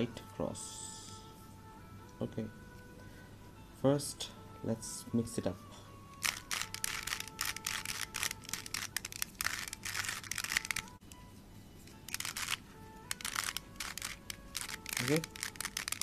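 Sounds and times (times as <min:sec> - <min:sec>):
faint background music: 0:00.0 - 0:16.0
plastic puzzle cube clicking: 0:06.2 - 0:10.9, 0:12.1 - 0:16.0.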